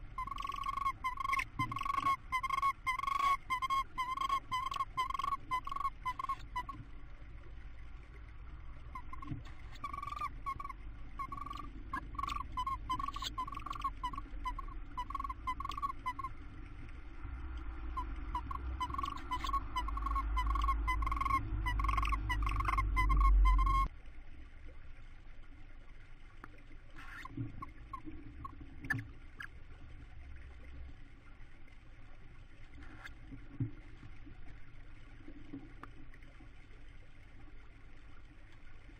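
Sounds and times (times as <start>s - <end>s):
owls twittering calls: 0.2s - 6.8s, 8.9s - 16.3s, 18.0s - 23.9s, 27.0s - 28.1s.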